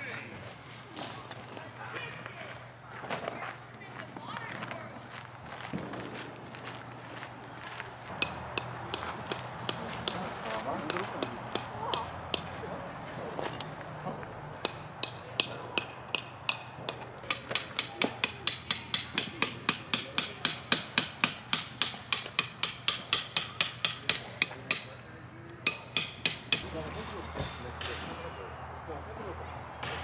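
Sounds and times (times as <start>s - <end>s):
hammer striking metal stakes: 8.1s - 12.6s, 14.6s - 28.3s.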